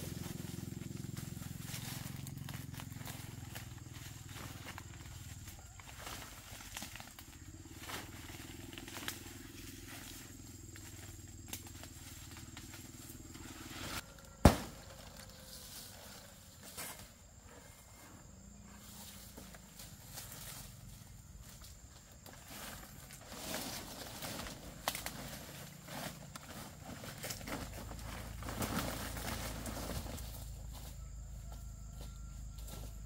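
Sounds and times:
leaves rustling: 0:00.0 - 0:16.5, 0:18.8 - 0:30.9
machete chopping fronds: 0:13.7 - 0:15.4.

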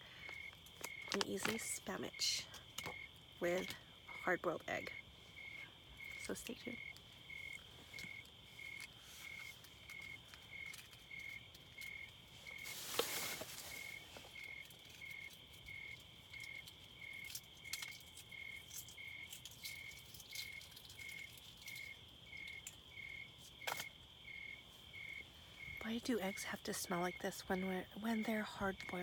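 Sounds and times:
crickets chirping: 0:00.0 - 0:29.0
high-pitched insect trill: 0:02.6 - 0:25.8.

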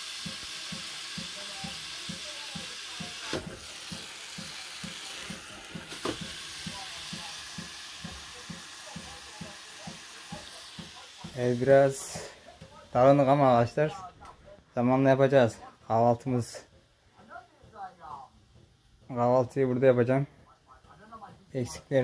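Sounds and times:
sausage sizzling in frying pan: 0:00.0 - 0:14.0.

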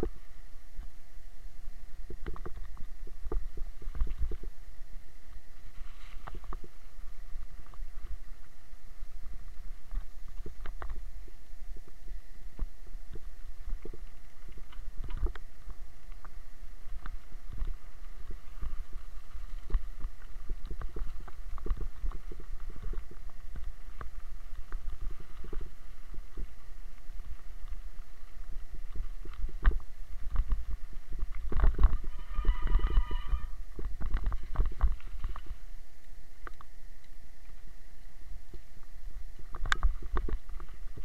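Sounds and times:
short high squeal: 0:32.0 - 0:33.6.

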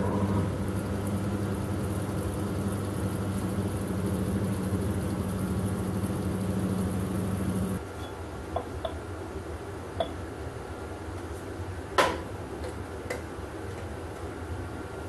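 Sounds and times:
lathe motor humming: 0:00.0 - 0:07.8.

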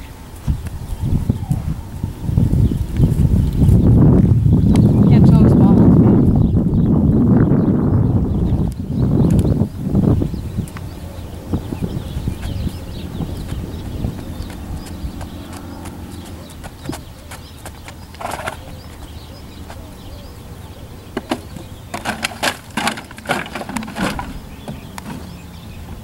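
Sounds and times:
hooves crunching plastic bottles: 0:13.5 - 0:19.9, 0:21.1 - 0:25.5.

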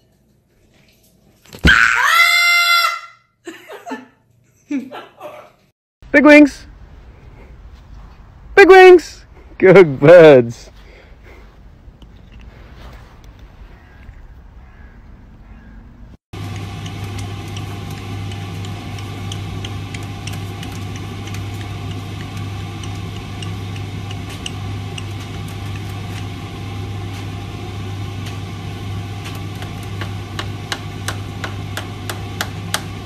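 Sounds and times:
washing machine motor hum: 0:16.3 - 0:33.0.

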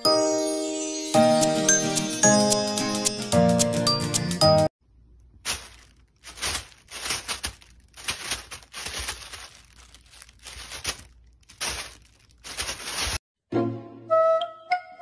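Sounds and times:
plastic bag crinkling: 0:05.1 - 0:13.2.

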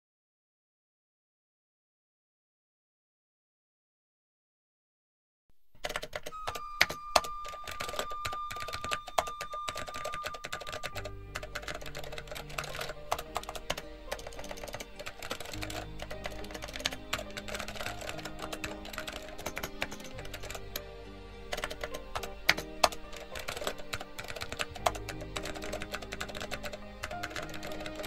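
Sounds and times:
rapid typing key clicks: 0:05.8 - 0:20.8, 0:21.5 - 0:28.0.

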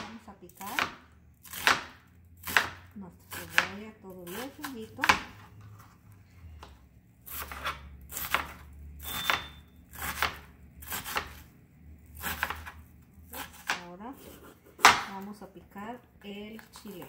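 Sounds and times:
knife chopping on plastic board: 0:00.0 - 0:05.5, 0:07.3 - 0:11.5, 0:12.2 - 0:15.2.

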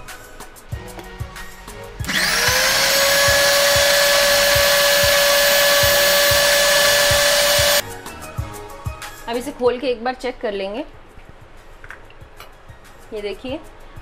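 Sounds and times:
mixer grinder motor whining: 0:02.0 - 0:07.8.

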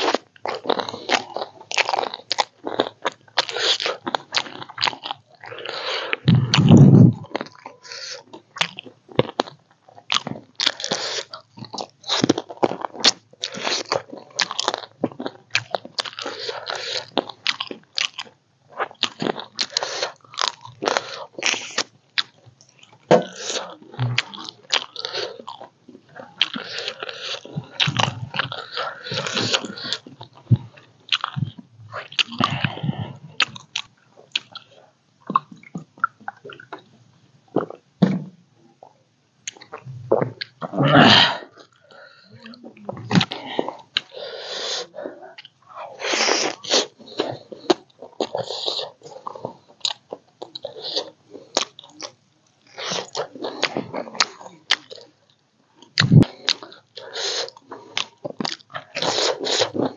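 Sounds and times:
person chewing and eating: 0:00.0 - 0:38.0, 0:38.8 - 0:59.9.

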